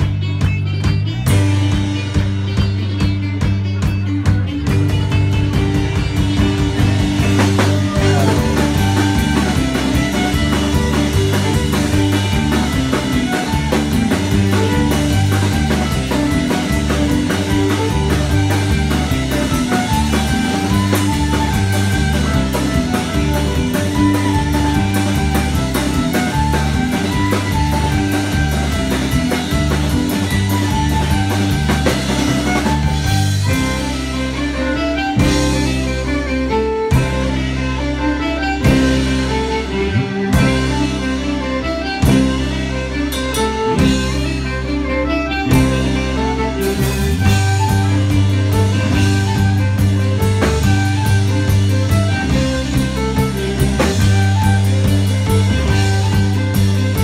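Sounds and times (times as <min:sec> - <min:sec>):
bass line: 0:00.0 - 0:57.0
driving drum kit: 0:00.0 - 0:57.0
electric guitar: 0:00.0 - 0:57.0
fiddle: 0:00.0 - 0:57.0.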